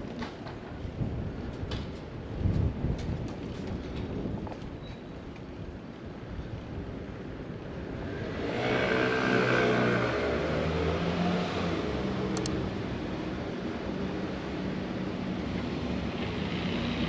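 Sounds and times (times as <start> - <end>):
wind noise on microphone: 0.7 - 7.0.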